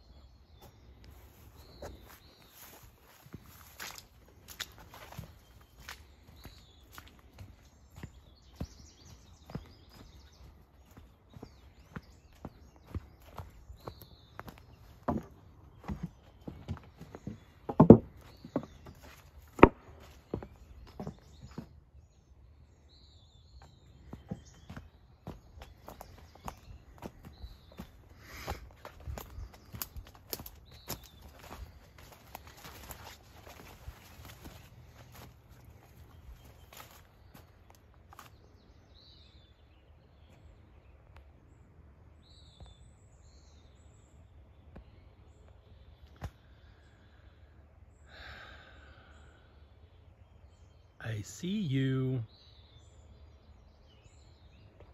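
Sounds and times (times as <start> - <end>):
footsteps in leaf litter: 1.2 - 7.5, 28.2 - 38.3
faint bird calls: 44.7 - 53.5.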